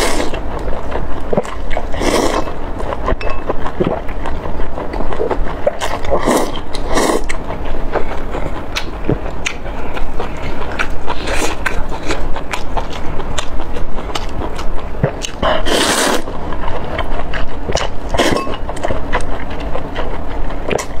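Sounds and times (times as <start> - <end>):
loud slurp: 0.0 - 0.4, 1.4 - 2.5, 15.1 - 16.3
wet chewing and lip smacks: 0.0 - 21.0.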